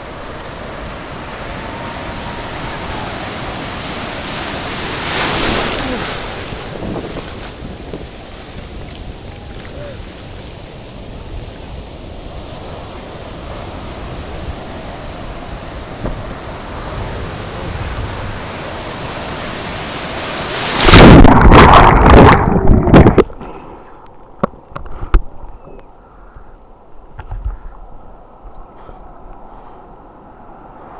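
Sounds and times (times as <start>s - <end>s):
wave splashing over camera: 0.0s - 23.4s
wind on microphone: 0.0s - 23.4s
surf: 0.0s - 25.9s.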